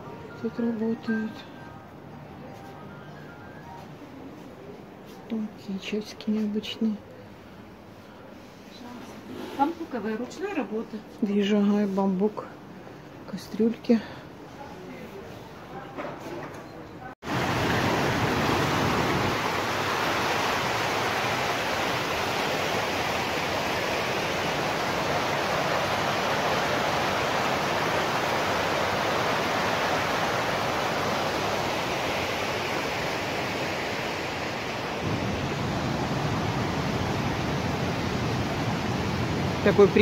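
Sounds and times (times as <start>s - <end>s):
waterfall rushing: 17.3s - 40.0s.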